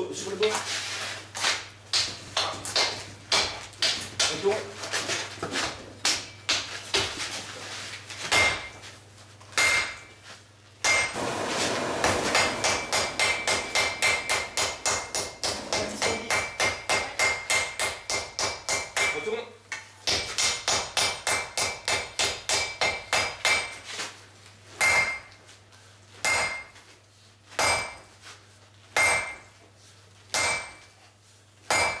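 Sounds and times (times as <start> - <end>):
hammer blows on anvil: 10.8 - 19.3.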